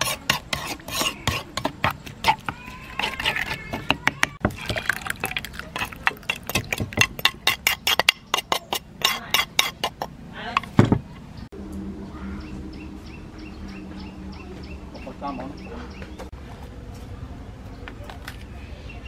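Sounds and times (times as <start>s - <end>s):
metal spoon clinking on mortar: 0.0s - 10.8s
low outdoor hum: 0.0s - 19.0s.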